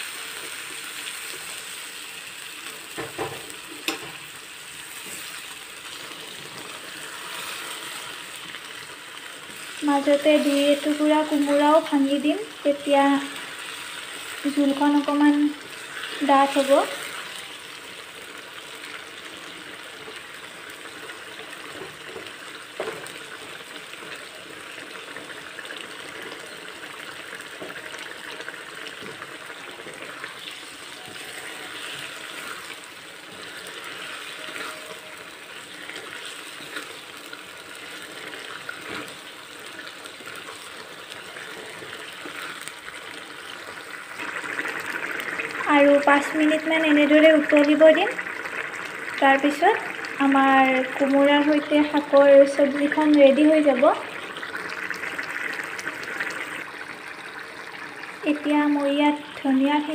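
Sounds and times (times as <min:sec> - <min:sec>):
curry bubbling in a wok: 0:00.0 - 0:59.9
spatula stirring and mashing: 0:28.8 - 0:43.8.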